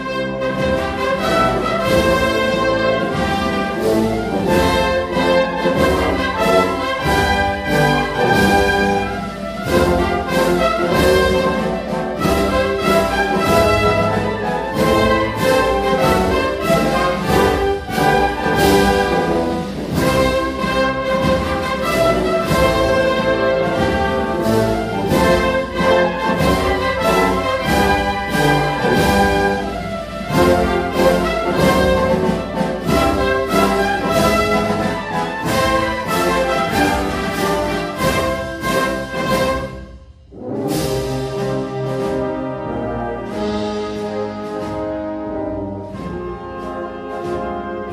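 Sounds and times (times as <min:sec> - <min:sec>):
wind band playing a march: 0:00.0 - 0:47.9
drum strokes: 0:00.6 - 0:42.4.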